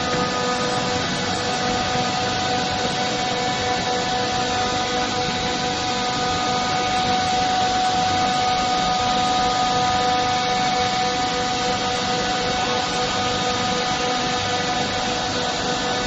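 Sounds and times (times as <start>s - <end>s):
droning hum with held tones: 0.0s - 16.0s.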